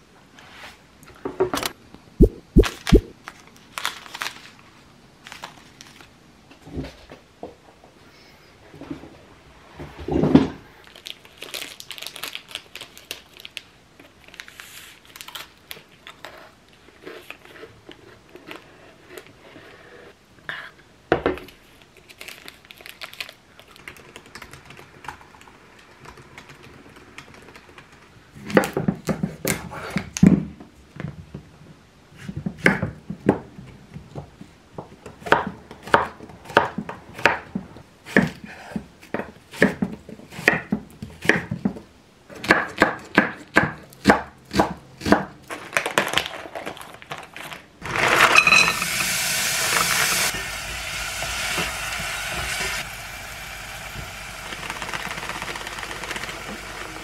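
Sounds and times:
meat sizzling in a pot: 47.8 - 57.0.

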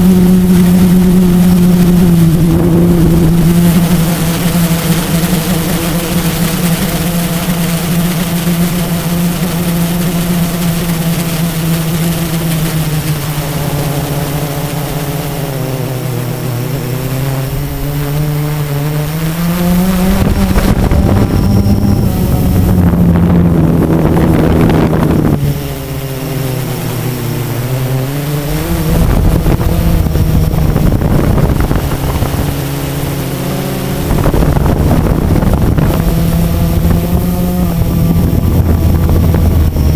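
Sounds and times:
quadcopter motors humming: 0.0 - 39.9
wind noise on microphone: 0.0 - 39.9.

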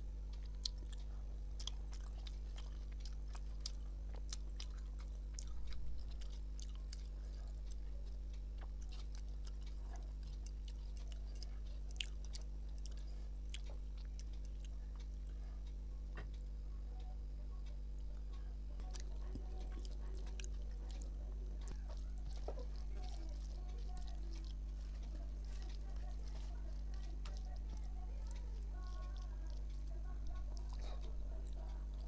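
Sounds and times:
soft chewing: 0.0 - 32.0
steady low hum: 0.0 - 32.0.

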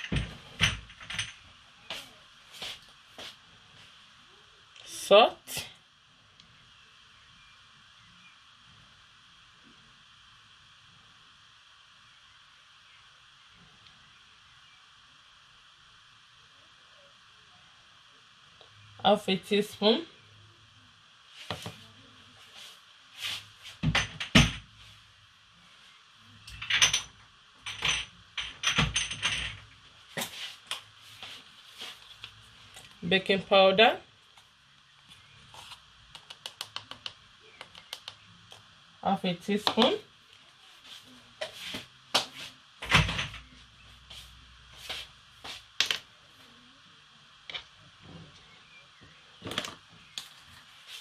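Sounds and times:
kitchen items knocking and clattering: 0.0 - 1.5, 23.8 - 24.7, 26.6 - 30.3.

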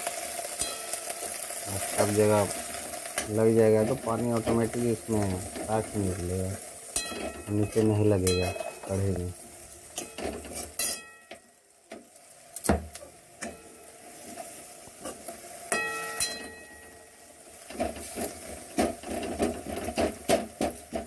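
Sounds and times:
ladle scraping and tapping pan: 17.6 - 21.0.

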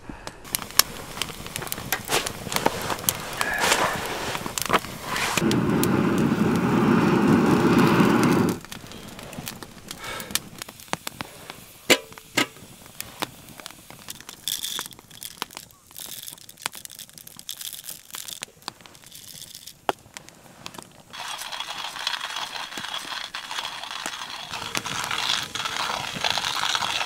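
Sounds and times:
campfire crackling and popping: 0.4 - 27.0
air blown through pipe: 5.0 - 8.6.

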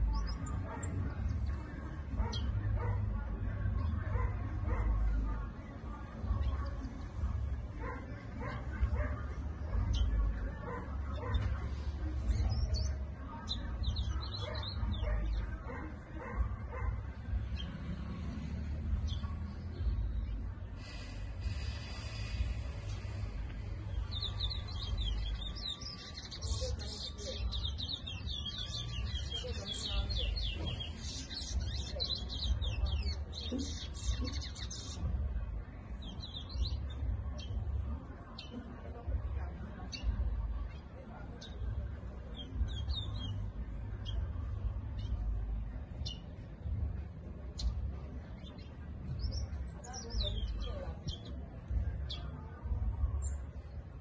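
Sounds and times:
finch chirping and warbling: 0.0 - 1.5, 23.9 - 35.2, 36.0 - 37.6, 42.3 - 46.8, 47.4 - 52.4
dogs barking: 0.1 - 5.6, 7.6 - 11.7, 13.7 - 18.3.

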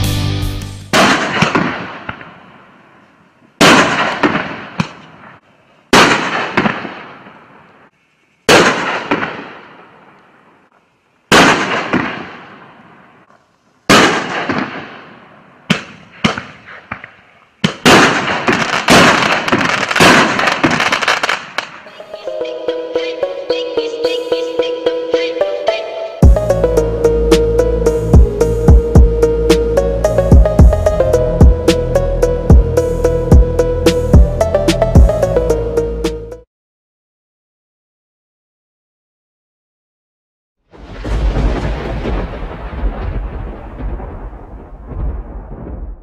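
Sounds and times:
firework bangs: 0.9 - 2.6, 3.6 - 7.6, 8.5 - 10.2, 11.3 - 13.2, 13.9 - 21.9, 40.8 - 46.0
firework crackle: 11.3 - 21.9.

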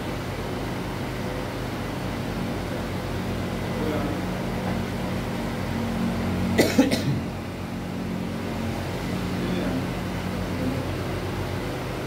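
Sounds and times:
steady low hum: 0.0 - 12.0
person coughing: 6.6 - 7.3.

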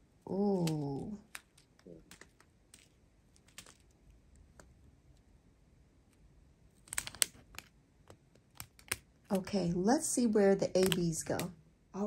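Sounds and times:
plastic packaging clicking and crinkling: 0.4 - 4.7, 6.7 - 9.5.

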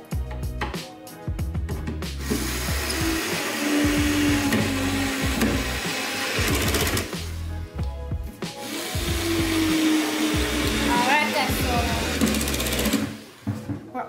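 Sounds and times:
cordless drill driving a screw: 2.2 - 7.2, 8.6 - 13.3.

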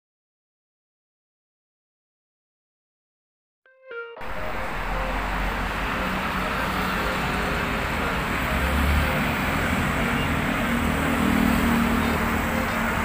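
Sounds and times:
cars driving past: 4.2 - 13.0
heavy vehicle low rumble: 4.2 - 13.0.

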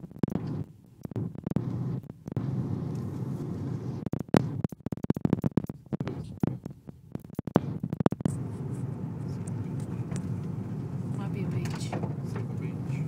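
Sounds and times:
sharp clicks and knocks: 0.0 - 3.3, 4.0 - 8.4
car road and engine rumble: 0.0 - 13.0.

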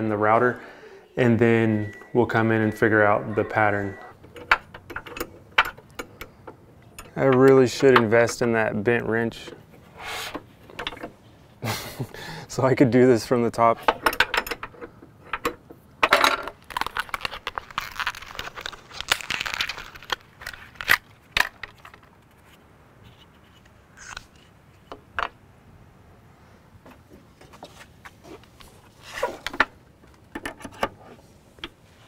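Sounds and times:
rustling and scraping: 13.7 - 25.0, 26.8 - 32.0.

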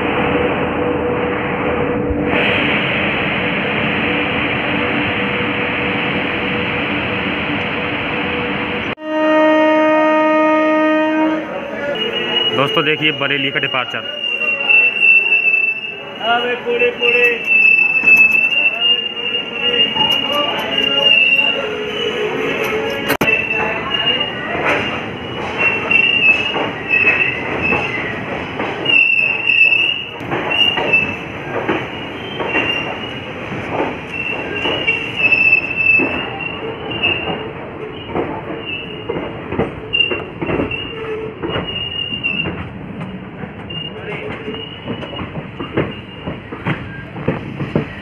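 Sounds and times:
train rattling: 0.0 - 48.0
train wheels squealing on rails: 11.5 - 48.0.

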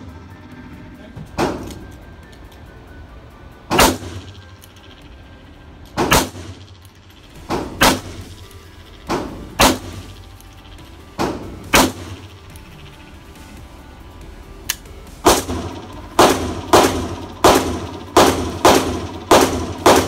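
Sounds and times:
loud handgun shots: 3.7 - 4.3, 6.0 - 6.6, 7.5 - 8.3, 9.1 - 10.1, 11.2 - 12.2, 15.2 - 20.0
quieter gunshot: 3.7 - 4.3, 6.0 - 6.6, 7.5 - 8.4, 9.1 - 10.1, 11.2 - 12.2, 15.3 - 20.0.

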